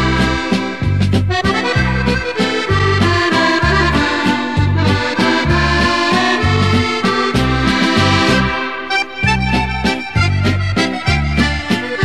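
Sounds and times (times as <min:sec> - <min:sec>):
instrumental music with bouncing beat: 0:00.0 - 0:12.0.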